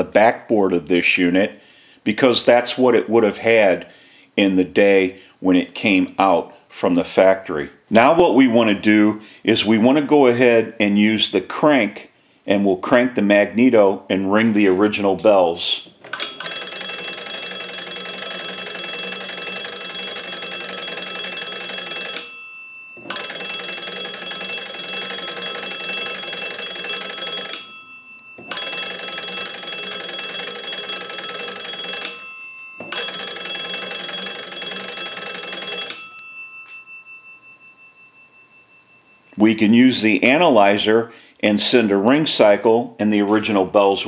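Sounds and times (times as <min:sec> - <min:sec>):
telephone bells ringing: 0:16.2 - 0:39.4.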